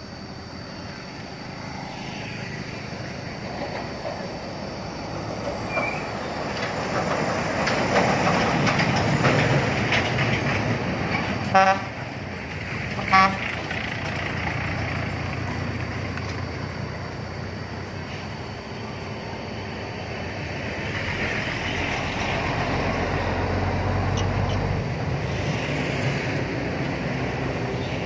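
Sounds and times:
heavy vehicle rumble: 0:00.0 - 0:28.0
vehicle horn toots: 0:11.5 - 0:12.0, 0:13.0 - 0:13.4.

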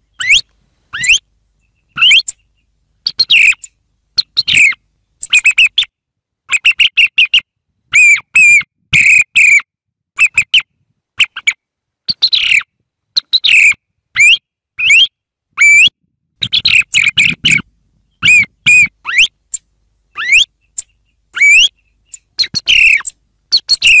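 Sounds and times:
song thrush singing: 0:00.0 - 0:09.6, 0:10.2 - 0:24.0.

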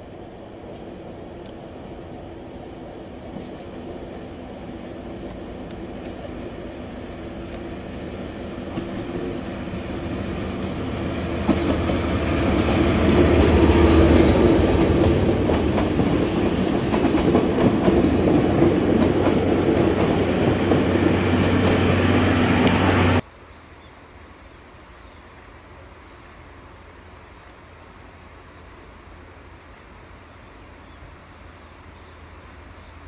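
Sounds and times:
diesel locomotive engine: 0:00.0 - 0:23.2.

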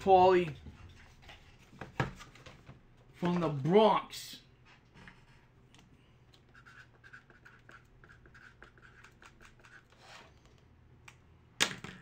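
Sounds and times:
felt-tip marker scratching: 0:06.5 - 0:10.2.

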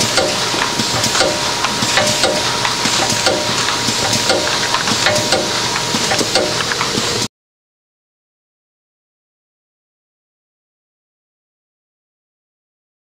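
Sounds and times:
thin steady whine: 0:00.0 - 0:07.2
machine clacking: 0:00.0 - 0:07.3
machine hissing: 0:00.0 - 0:07.3.

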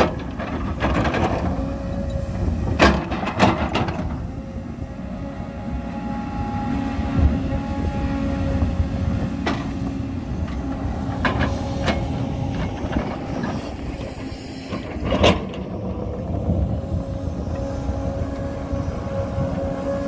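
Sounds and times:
excavator running under load: 0:00.0 - 0:20.0.

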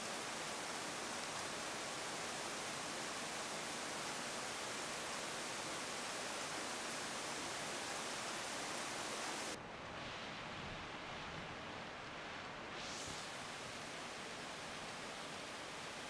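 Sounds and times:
heavy rain hissing: 0:00.0 - 0:09.6, 0:12.8 - 0:16.0.

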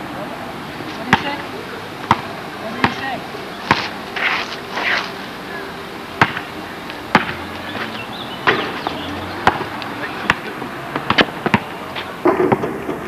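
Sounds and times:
rubber ball bouncing on asphalt: 0:01.0 - 0:01.4, 0:02.0 - 0:04.0, 0:06.2 - 0:07.8, 0:08.4 - 0:13.0.

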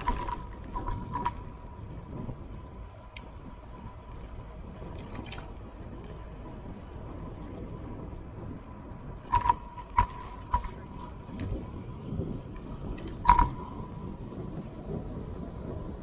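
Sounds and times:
road and wind rumble: 0:00.0 - 0:16.0
sharp rattling knocks: 0:09.2 - 0:11.0.

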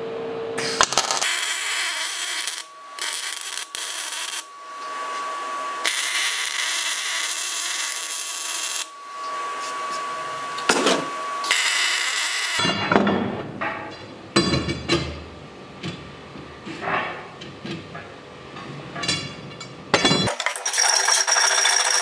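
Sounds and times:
welding arc hissing: 0:00.6 - 0:12.6.

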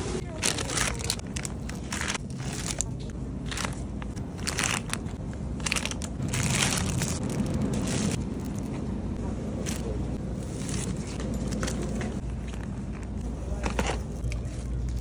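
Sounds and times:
plastic bags crinkling: 0:00.2 - 0:08.7.

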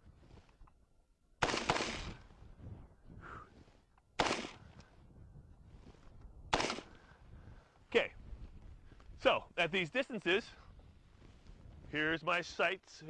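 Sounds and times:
rifle shots with echo: 0:01.4 - 0:02.2, 0:04.2 - 0:04.7, 0:06.5 - 0:07.0.

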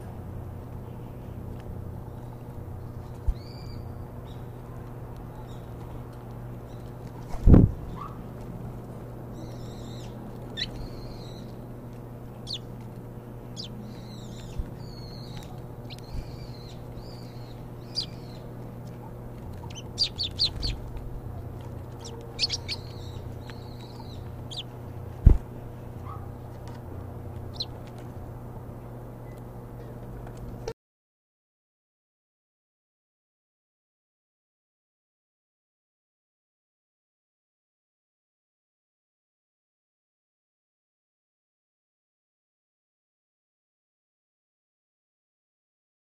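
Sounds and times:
low steady hum: 0:00.0 - 0:30.8
sparrows chirping: 0:00.4 - 0:07.2, 0:08.9 - 0:29.5.

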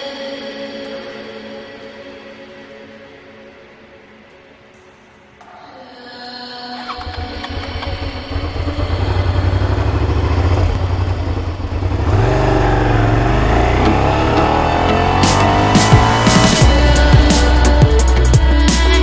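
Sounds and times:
motorcycle engine accelerating: 0:06.8 - 0:18.1.

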